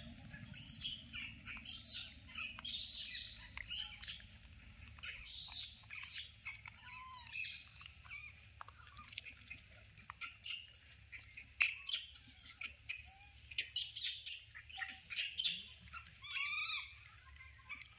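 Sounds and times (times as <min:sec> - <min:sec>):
high-pitched chirping calls: 0:00.3 - 0:04.3, 0:04.9 - 0:09.5, 0:10.1 - 0:17.9
small clicks: 0:01.6 - 0:10.7.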